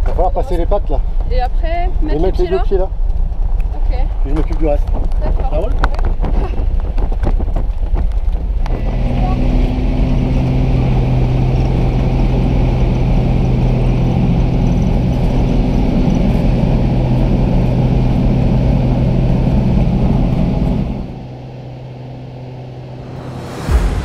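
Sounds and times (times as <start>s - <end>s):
small plane engine drone: 8.3s - 24.0s.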